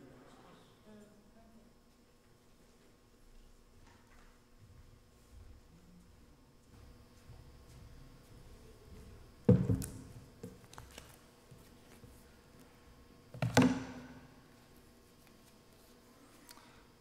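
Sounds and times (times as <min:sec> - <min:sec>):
loud knocks on lectern: 0:09.5 - 0:10.0
papers and binder handled: 0:09.6 - 0:12.3.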